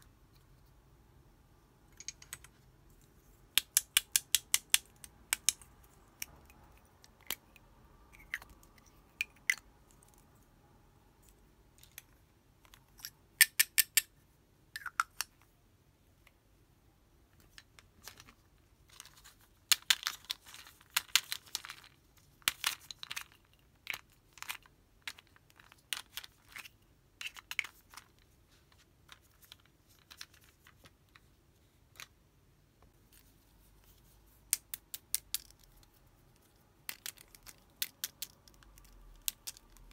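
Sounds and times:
fingernails tapping on plastic tubes: 0:03.5 - 0:07.4.

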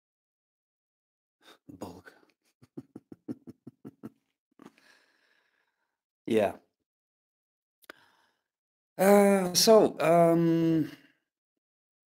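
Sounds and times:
man laughing quietly: 0:02.6 - 0:04.2.

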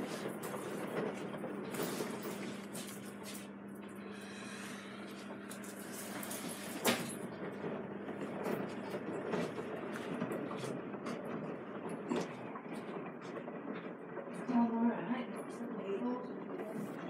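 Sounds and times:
washing machine hum: 0:00.0 - 0:17.0
washing machine mechanical noise: 0:00.0 - 0:17.0.

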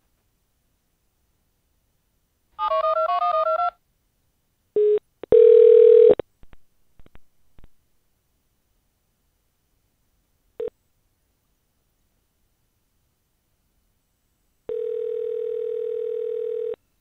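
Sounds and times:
telephone line tone: 0:04.8 - 0:06.2, 0:14.7 - 0:16.8.

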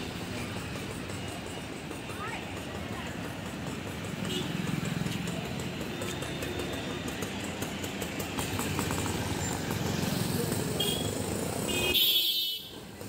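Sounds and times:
low engine rumble: 0:00.0 - 0:11.7
motorcycle passing close: 0:02.9 - 0:11.7.

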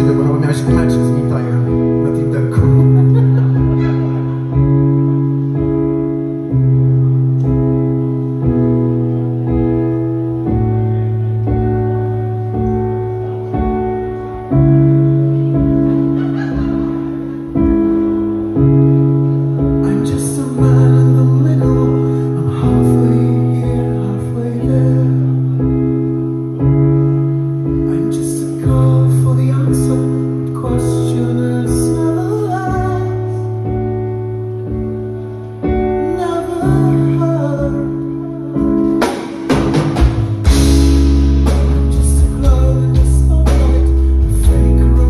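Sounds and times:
live rock band playing: 0:00.0 - 0:45.0.

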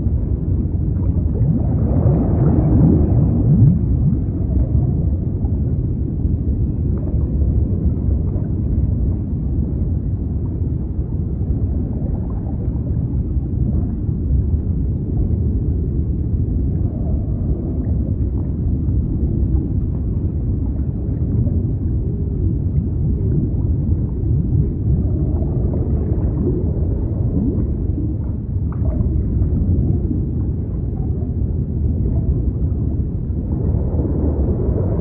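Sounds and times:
deep sea rush: 0:00.0 - 0:35.0.

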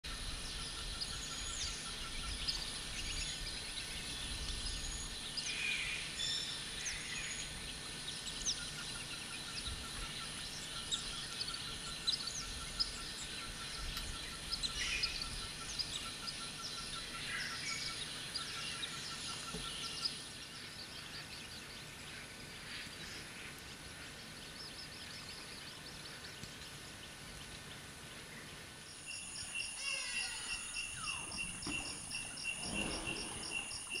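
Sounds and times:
birds calling and chirping: 0:00.1 - 0:34.0
high insect drone: 0:28.9 - 0:34.0.

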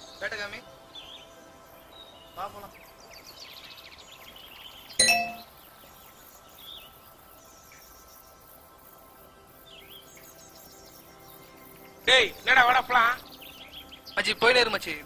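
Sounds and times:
birds chirping: 0:01.0 - 0:07.0, 0:09.8 - 0:15.0
bright metallic ding: 0:05.0 - 0:05.5.

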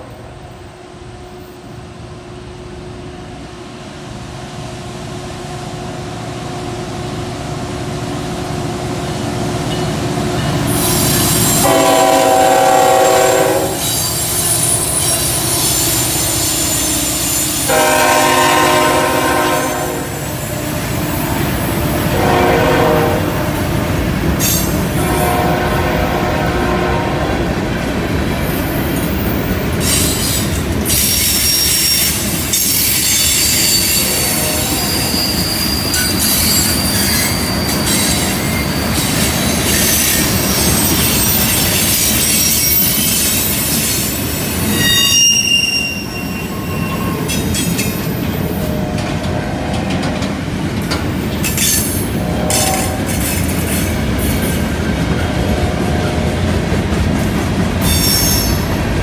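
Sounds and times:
train wheels rumbling on rail: 0:00.0 - 0:59.0
wheel flange squeal: 0:29.1 - 0:48.7, 0:57.8 - 0:58.8.

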